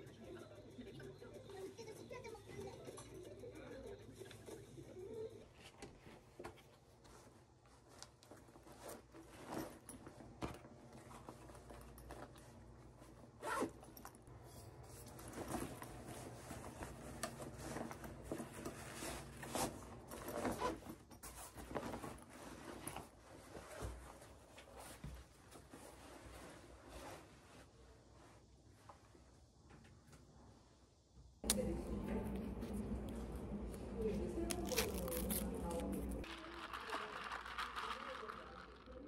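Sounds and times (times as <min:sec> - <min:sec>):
backpack rustling: 0:08.0 - 0:14.2, 0:14.9 - 0:27.4
zippers drawn: 0:13.4 - 0:13.9, 0:19.6 - 0:21.0.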